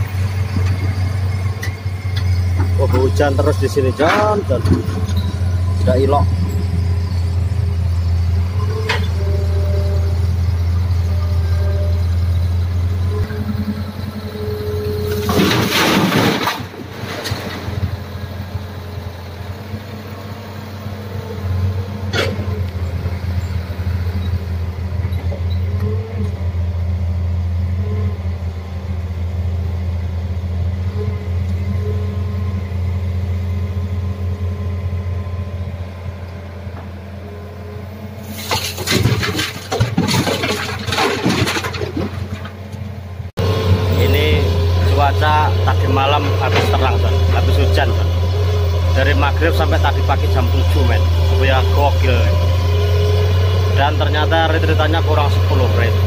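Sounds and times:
diesel engine idling: 0:00.0 - 0:15.3, 0:16.7 - 0:56.0
earth and rock clattering into truck bed: 0:15.1 - 0:18.0, 0:38.3 - 0:42.9.

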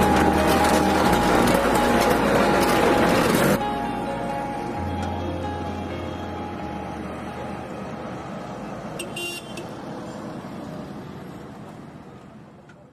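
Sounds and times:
highway traffic: 0:00.0 - 0:12.9
high-pitched vehicle horn toot: 0:09.0 - 0:09.7.

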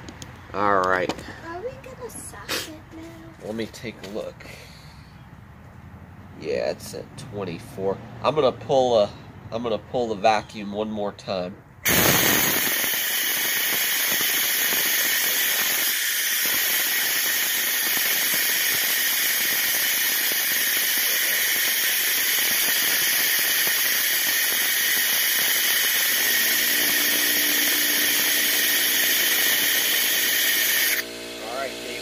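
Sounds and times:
compressed air hissing: 0:11.8 - 0:31.0.

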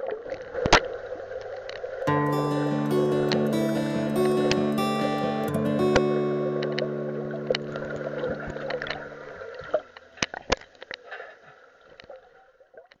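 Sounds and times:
background music held notes: 0:02.1 - 0:09.4.

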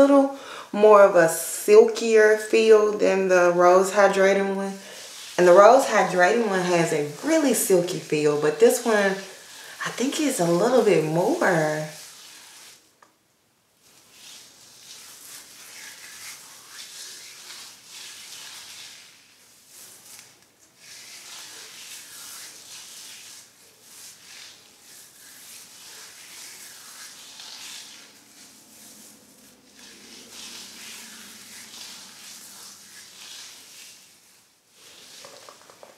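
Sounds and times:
hands rubbing wet hair: 0:01.1 - 0:12.9, 0:13.8 - 0:35.9.

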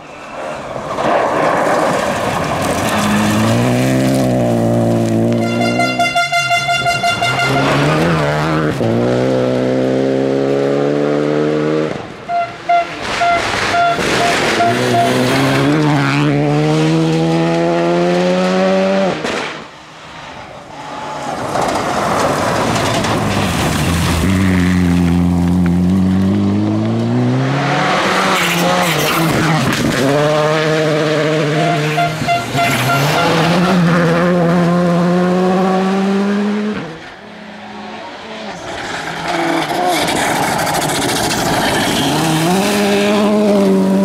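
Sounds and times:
tyres rushing on gravel: 0:00.0 - 0:05.8, 0:12.5 - 0:16.3, 0:20.2 - 0:26.4, 0:31.4 - 0:34.1, 0:38.5 - 0:44.0
rally car engines revving: 0:00.0 - 0:44.0.

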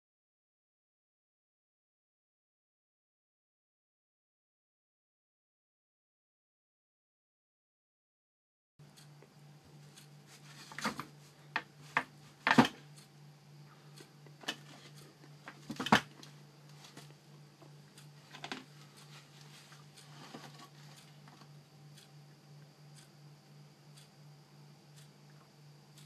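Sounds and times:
steady low hum: 0:08.8 - 0:26.0.

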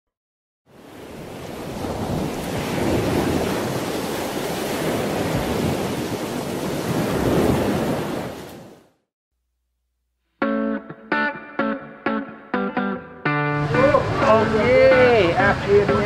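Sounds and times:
rushing surf-like noise: 0:13.5 - 0:16.0.

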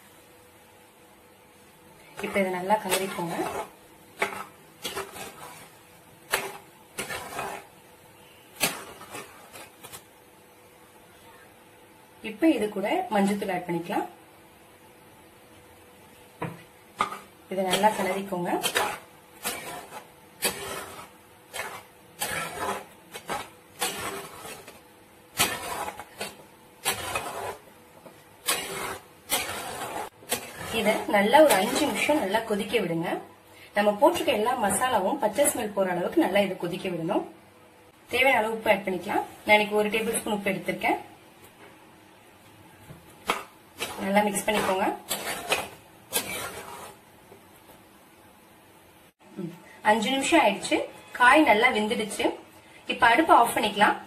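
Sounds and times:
spatula scraping metal pan: 0:02.0 - 0:10.0, 0:16.9 - 0:32.9, 0:43.2 - 0:47.1.

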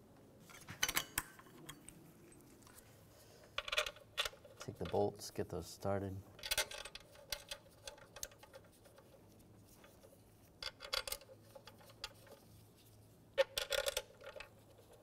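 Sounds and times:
bolts clicking and rattling: 0:03.6 - 0:05.2, 0:06.4 - 0:09.2, 0:09.8 - 0:12.4, 0:13.4 - 0:15.0.

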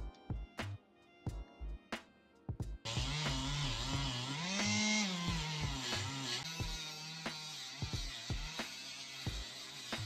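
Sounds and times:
background music with drum beat: 0:00.0 - 0:10.0
rotary tool whining: 0:02.9 - 0:10.0.

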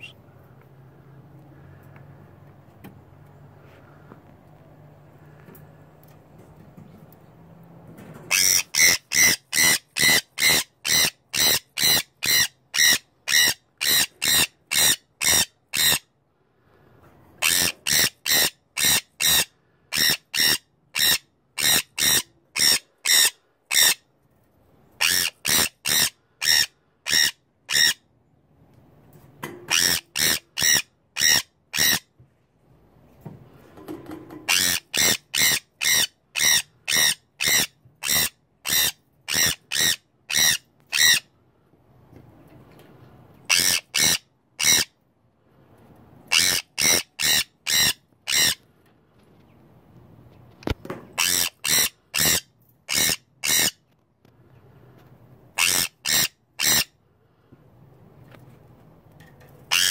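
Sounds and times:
parrot screeching: 0:08.3 - 0:16.0, 0:17.4 - 0:24.0, 0:25.0 - 0:28.0, 0:29.7 - 0:32.0, 0:34.5 - 0:41.3, 0:43.5 - 0:44.9, 0:46.3 - 0:48.6, 0:51.2 - 0:53.8, 0:55.6 - 0:56.9, 0:59.7 - 0:59.9.

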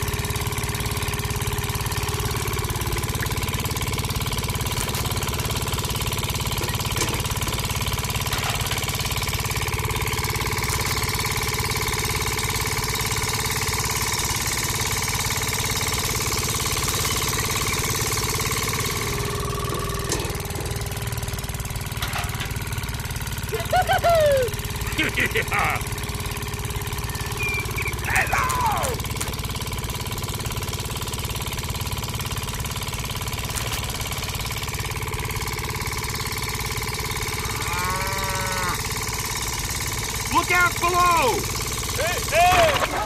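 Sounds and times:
small motor running: 0:00.0 - 0:43.0
stalk crushed through rollers: 0:00.4 - 0:12.7, 0:15.3 - 0:23.3, 0:25.8 - 0:35.6.

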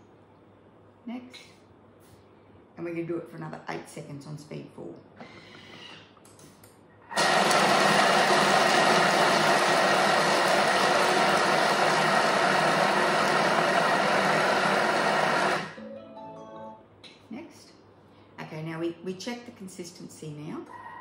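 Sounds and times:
food processor whirring: 0:07.2 - 0:15.8.

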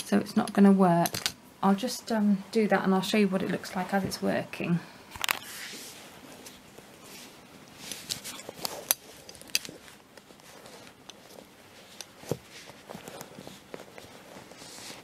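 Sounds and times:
leather rubbing: 0:05.6 - 0:15.0.

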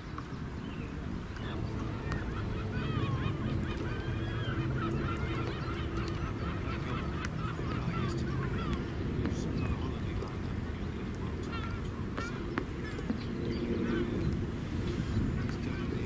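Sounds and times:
steady low rumble: 0:00.0 - 0:16.0
geese honking: 0:00.8 - 0:16.0.

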